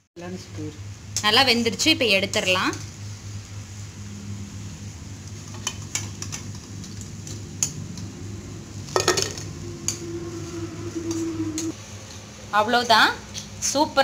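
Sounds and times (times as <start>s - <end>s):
oil sizzling: 2.6s - 12.1s.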